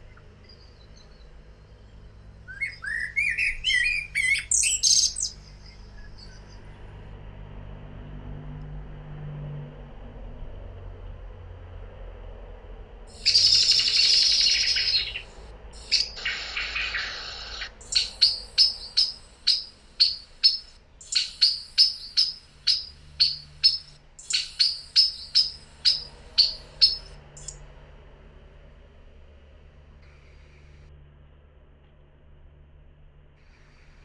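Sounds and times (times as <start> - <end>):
blackbird rattling chatter: 13.1 - 27.6
blackbird sharp call notes: 13.1 - 27.6.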